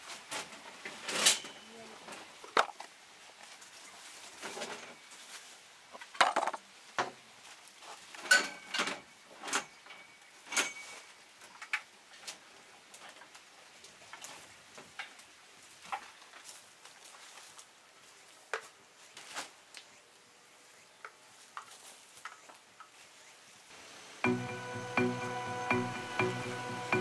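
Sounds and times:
metal tools clanking in toolbox: 8.2 - 11.1.

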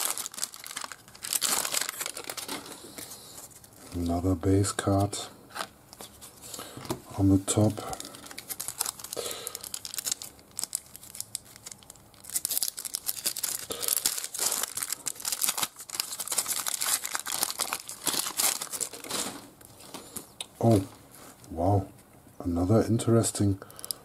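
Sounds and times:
foil wrapper tearing and crinkling: 0.0 - 3.1, 7.9 - 20.2.

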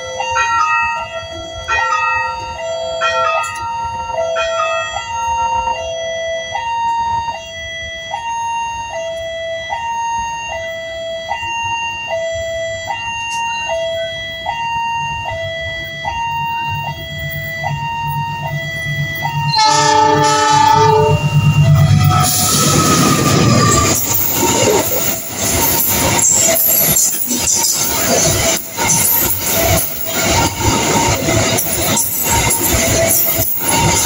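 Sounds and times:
locomotive horn chord: 0.0 - 24.0
diesel locomotive engine rumble: 0.0 - 34.0
level crossing alarm two tones: 0.0 - 34.0.

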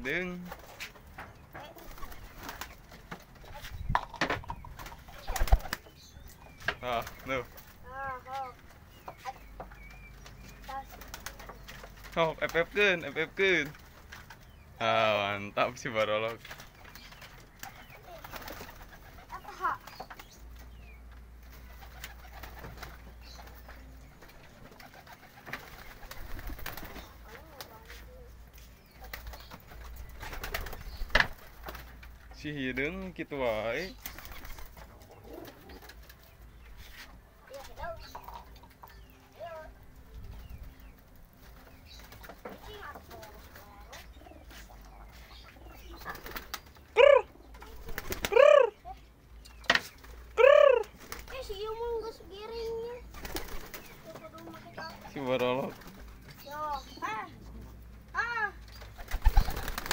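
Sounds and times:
pigeons cooing: 34.4 - 36.3, 42.7 - 49.1, 50.2 - 54.9, 59.0 - 59.9
drawn-out rising and falling calls: 44.2 - 49.0, 50.0 - 52.3.

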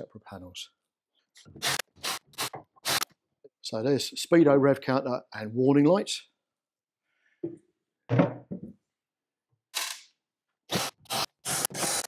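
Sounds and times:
drill-driver bursts on screws: 1.6 - 3.1, 10.7 - 12.0.

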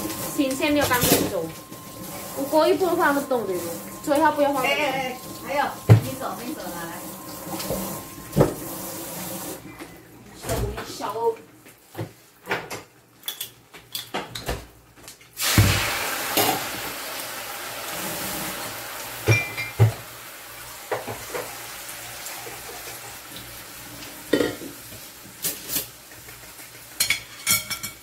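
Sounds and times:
fish sizzling in a wok: 0.0 - 9.6, 15.4 - 28.0
metal utensils clinking: 26.9 - 28.0.

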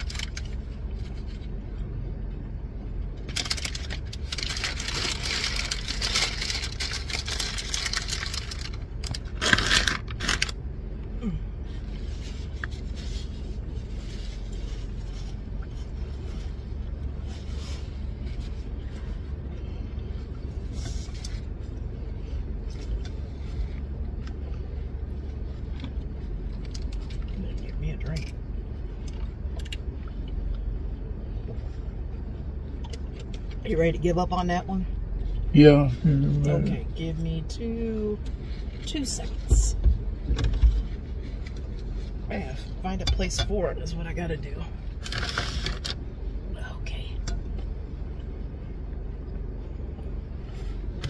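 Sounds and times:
paper wrapper crinkling: 0.0 - 1.4, 3.2 - 10.6
low hum inside car: 0.0 - 51.0.

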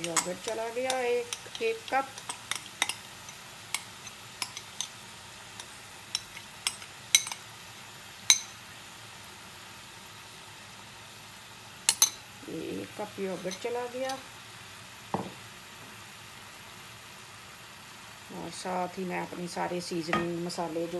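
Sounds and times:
chicken sizzling in oil: 0.0 - 20.9.

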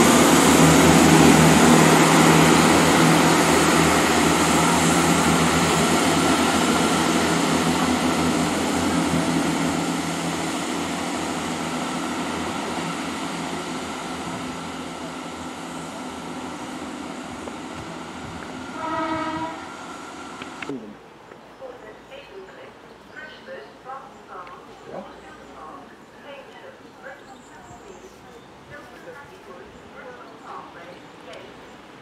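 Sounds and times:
train wheels on rails: 0.0 - 20.7
diesel train engine running: 0.0 - 20.8.

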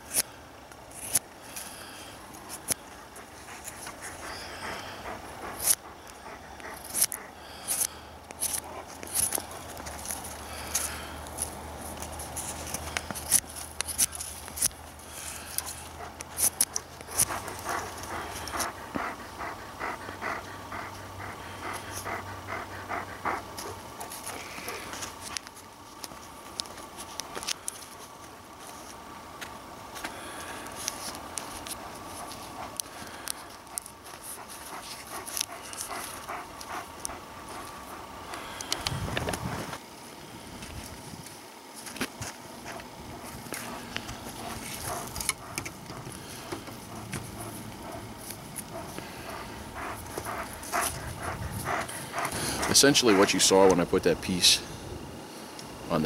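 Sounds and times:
knife carving wood: 0.0 - 0.3, 0.9 - 1.3, 5.5 - 5.8, 6.6 - 18.8, 42.6 - 46.1
dog panting: 2.3 - 25.5, 30.4 - 39.8, 42.2 - 54.6
light clicks and crackles: 23.6 - 39.8.

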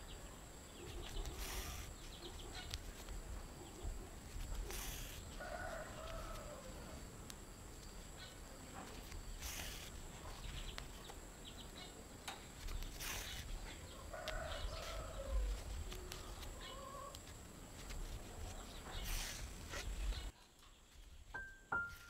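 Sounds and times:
thread drawn through fabric: 0.9 - 2.0, 4.3 - 5.4, 9.0 - 10.0, 12.6 - 13.8, 14.5 - 20.3.

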